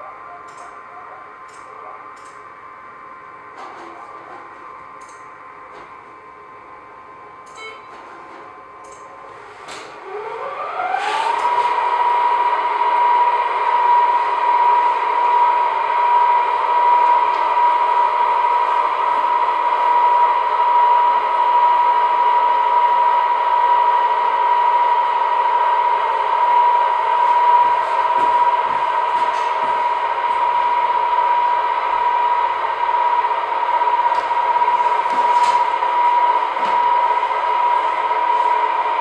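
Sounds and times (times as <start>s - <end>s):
motor whine: 9.2s - 39.0s.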